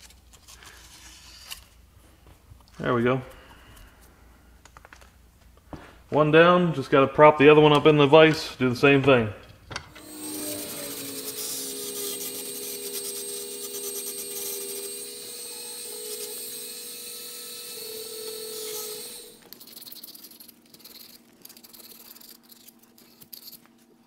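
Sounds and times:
rotary grinder whining: 0:09.9 - 0:23.7.

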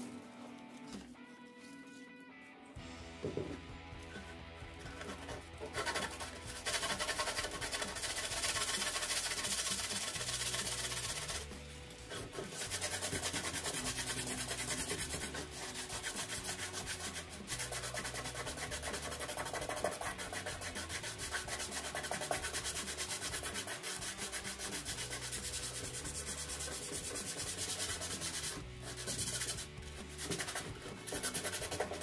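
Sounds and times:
sandpaper rubbing: 0:04.1 - 0:32.0.

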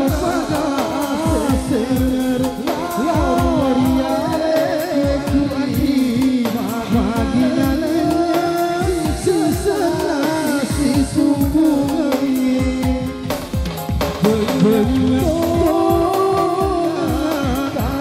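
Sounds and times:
fast drum beat: 0:00.0 - 0:18.0
person singing: 0:00.0 - 0:18.0.

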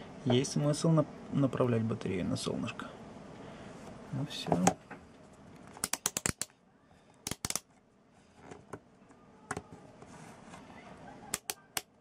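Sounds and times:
sharp small clicks: 0:05.8 - 0:06.6, 0:07.2 - 0:07.7.

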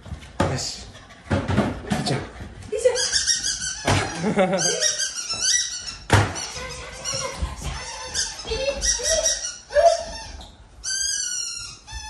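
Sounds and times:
dog high squeak: 0:02.8 - 0:12.0.

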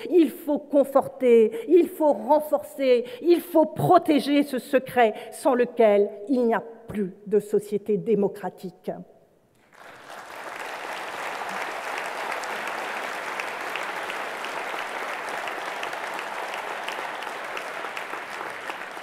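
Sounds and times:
audience applauding: 0:09.6 - 0:19.0.

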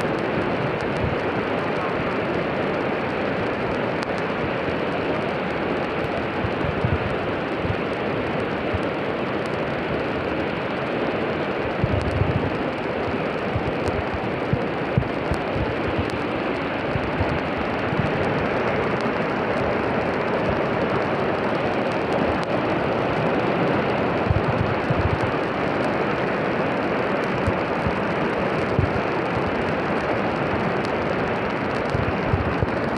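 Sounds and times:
floodwater rushing: 0:00.0 - 0:32.9
wind buffeting microphone: 0:00.0 - 0:32.9.

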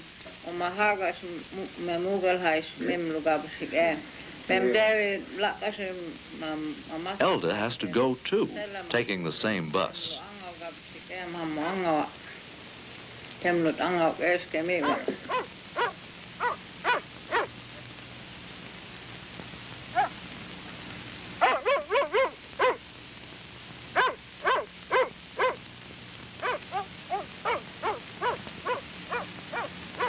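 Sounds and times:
faint steady hum: 0:00.0 - 0:30.0
dog barking: 0:14.8 - 0:17.5, 0:21.4 - 0:22.8, 0:24.0 - 0:25.6, 0:26.4 - 0:30.0.

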